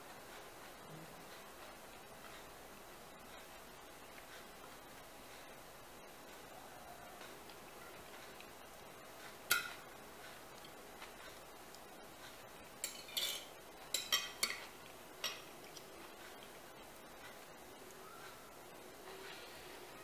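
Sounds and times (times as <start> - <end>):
cutlery clinking on a plate: 12.8 - 15.5.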